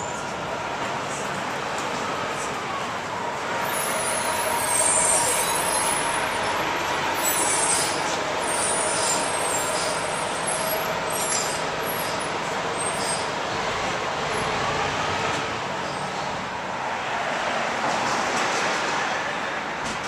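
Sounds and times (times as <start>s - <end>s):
city traffic: 0.0s - 20.0s.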